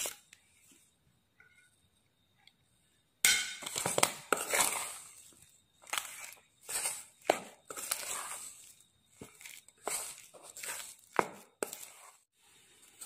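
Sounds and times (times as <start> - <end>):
metal spoon scraping steel bowl: 3.3 - 13.0.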